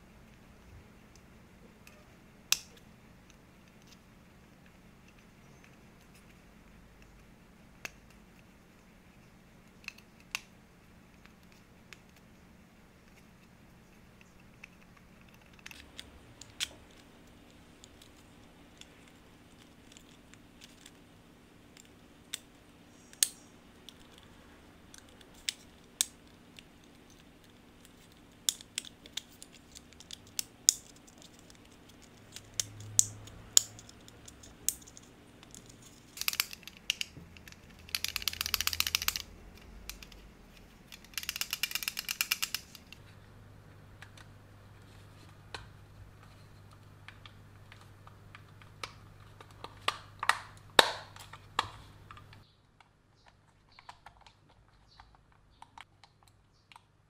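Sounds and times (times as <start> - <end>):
plastic mouse parts clicking: 14.2 - 21.0, 24.9 - 43.0, 46.6 - 56.9
rapid mouse clicking: 24.9 - 43.0.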